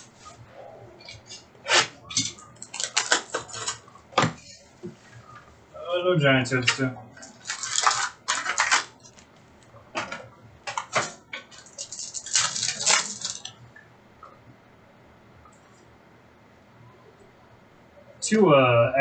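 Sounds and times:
wrappers and cards crinkling: 2.6 - 3.8, 6.6 - 9.4, 10.8 - 13.5.

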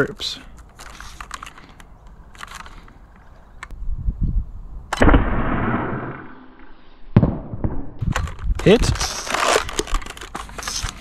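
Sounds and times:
handling clicks and thumps: 8.0 - 11.0.

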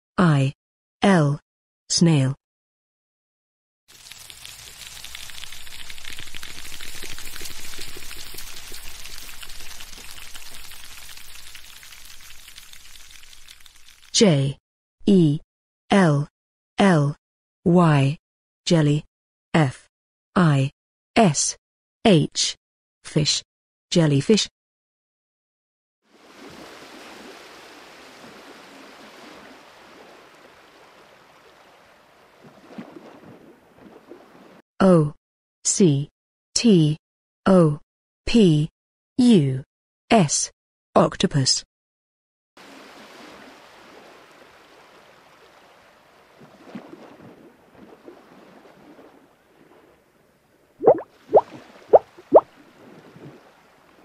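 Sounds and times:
water rushing: 3.9 - 14.2, 26.1 - 34.6, 42.6 - 49.4, 50.8 - 54.0
water splashing: 3.9 - 14.2, 26.1 - 34.6, 42.6 - 50.0, 50.8 - 54.0
wet crackling and popping: 3.9 - 14.2, 50.8 - 52.5.

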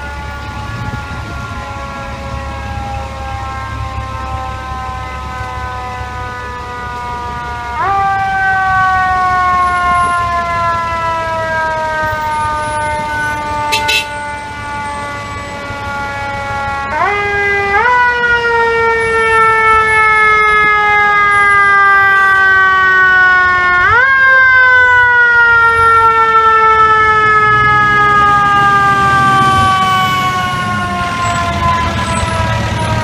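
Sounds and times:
mechanical siren wailing: 0.0 - 33.0
diesel truck engine rumbling: 26.8 - 33.0.

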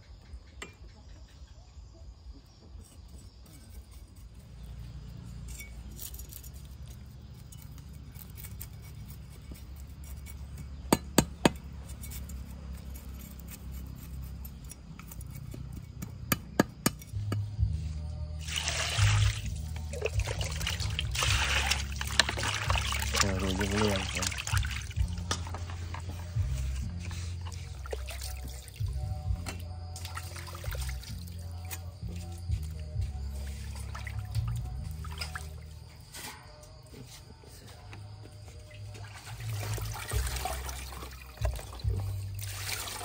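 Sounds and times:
liquid pouring and splashing: 18.4 - 25.5, 39.0 - 43.0.

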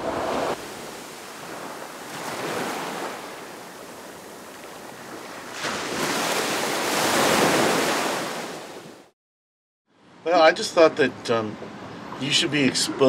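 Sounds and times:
ocean waves washing in: 0.0 - 9.1.

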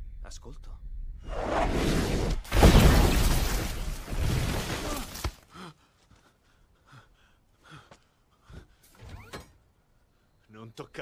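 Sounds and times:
loud crash and rushing debris: 2.0 - 5.4
man breathing and grunting: 5.3 - 8.9.

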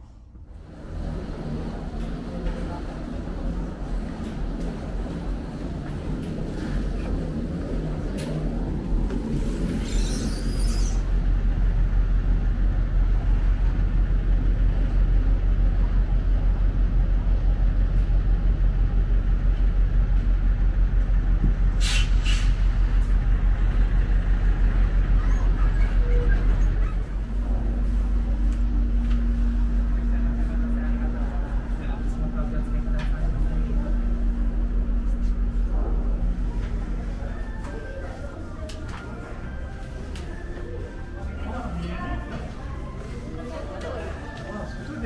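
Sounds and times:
heavy machinery rumbling: 0.2 - 45.0
hiss: 21.8 - 22.7
steady low hum: 22.5 - 45.0.

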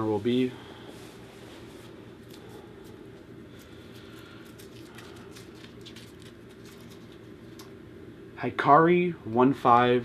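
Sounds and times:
steady low hum: 0.0 - 10.0
paper crinkling: 2.2 - 7.7.

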